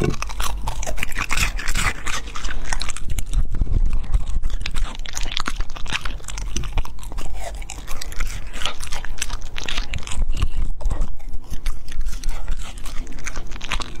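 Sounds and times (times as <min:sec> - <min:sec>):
dog crunching and chewing: 0:00.0 - 0:14.0.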